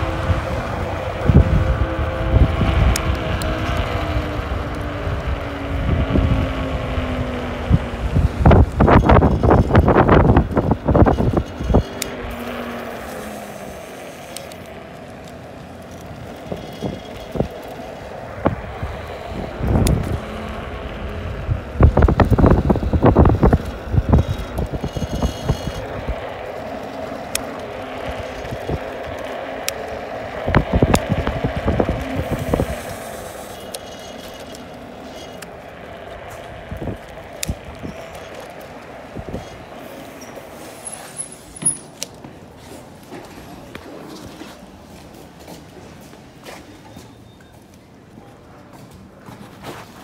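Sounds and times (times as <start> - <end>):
wind buffeting microphone: 0.0 - 41.0
electric scooter hum: 0.0 - 50.0.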